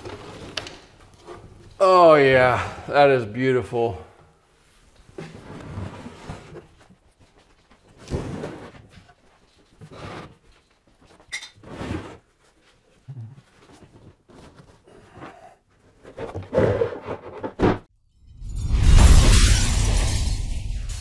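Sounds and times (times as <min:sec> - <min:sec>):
wood knocking and scraping: 0:13.6 - 0:17.9.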